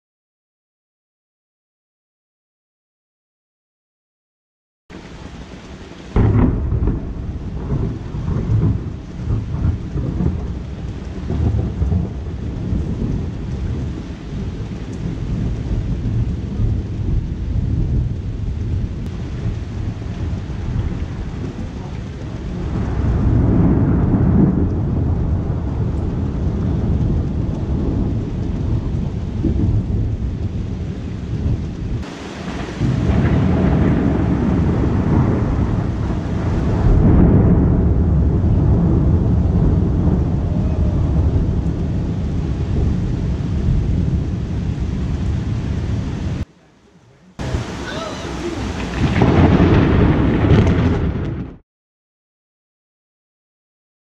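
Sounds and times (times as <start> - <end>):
low rolls of thunder: 4.9 - 46.5, 47.4 - 51.6
rain falling steadily: 4.9 - 51.6.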